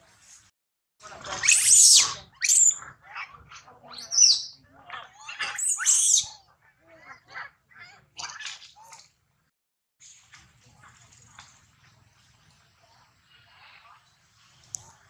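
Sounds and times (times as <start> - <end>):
monkeys screaming: 1.3 - 3.3, 3.9 - 6.4
monkeys chattering softly: 1.3 - 9.1.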